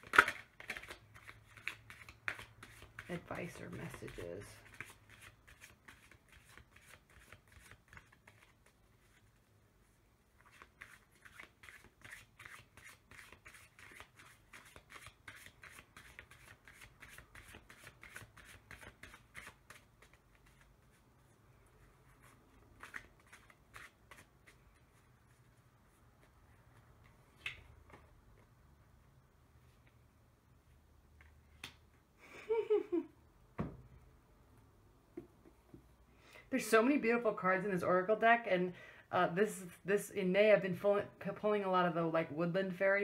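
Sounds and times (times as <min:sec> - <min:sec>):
cards being shuffled: 0:00.0 - 0:09.3, 0:10.4 - 0:21.0, 0:22.1 - 0:25.4.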